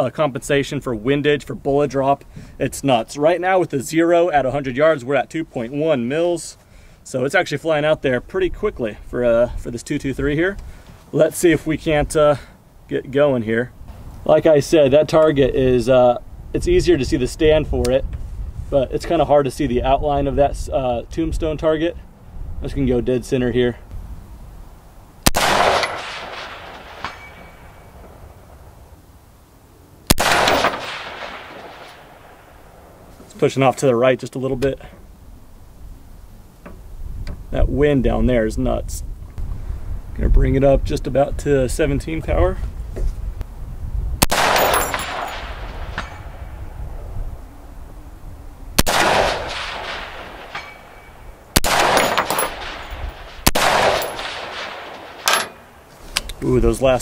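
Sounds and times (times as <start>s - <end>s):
wind on microphone: 15.3s - 24.8s, 35.3s - 55.2s
rifle shots with rolling echo: 25.2s - 28.6s, 30.1s - 33.1s, 44.2s - 46.7s, 48.8s - 55.9s
bullet ringing on steel target: 27.0s - 27.9s, 44.3s - 46.2s, 50.5s - 53.0s.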